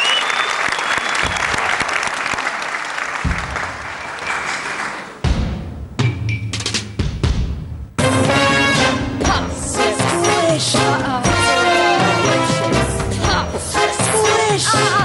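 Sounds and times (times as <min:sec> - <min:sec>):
audience applauding: 0:00.0 - 0:05.3
tango music with deep chords: 0:05.8 - 0:15.0.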